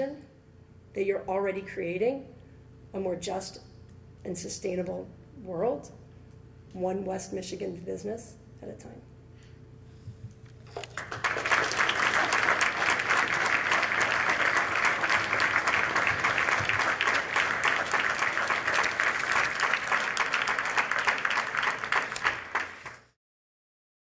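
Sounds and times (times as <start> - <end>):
audience applauding: 10.8 - 23.2.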